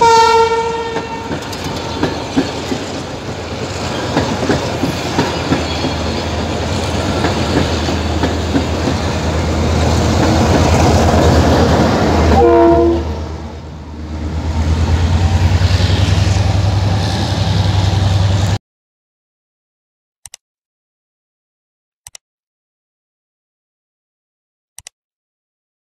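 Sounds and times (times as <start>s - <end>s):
train horn blast: 0.0s - 1.6s, 12.0s - 13.6s
train rumble and wheel clatter: 0.0s - 18.6s.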